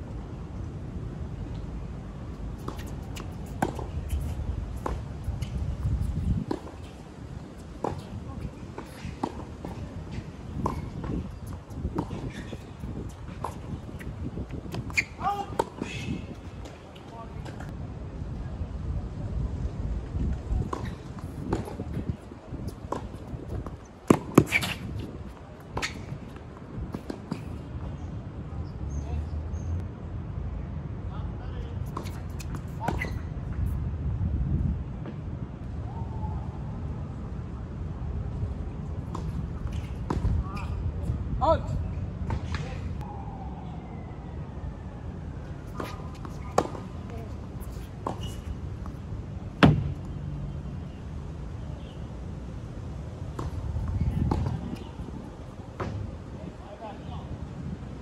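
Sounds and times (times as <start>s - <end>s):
racquets hitting tennis ball: 2.5s - 17.7s, 20.7s - 27.7s, 45.5s - 50.6s
tennis ball bouncing on court: 2.6s - 5.7s, 7.6s - 14.1s, 14.7s - 15.9s, 20.7s - 22.0s, 22.9s - 27.5s, 45.7s - 49.0s, 49.6s - 50.2s, 53.3s - 54.9s.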